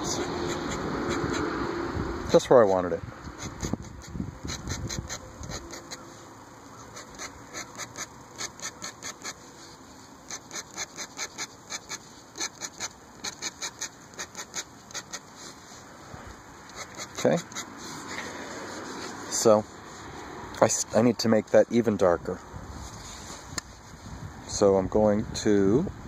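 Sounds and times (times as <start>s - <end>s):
pen nib scratching on paper: 0.1s - 1.5s, 3.4s - 6.0s, 6.9s - 9.4s, 10.3s - 15.3s, 16.7s - 18.1s.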